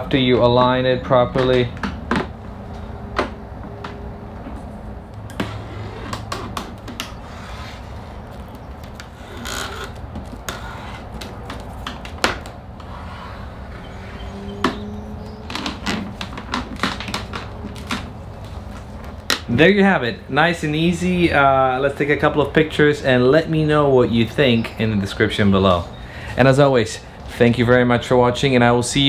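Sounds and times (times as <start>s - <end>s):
backing strips peeled off: 5.3s - 19.6s
hands clicking and tapping plastic: 9.9s - 12.9s, 15.4s - 18.1s.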